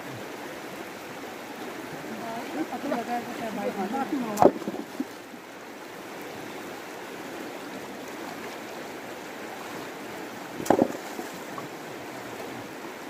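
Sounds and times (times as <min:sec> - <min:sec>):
river flowing over rocks: 0:00.0 - 0:13.0.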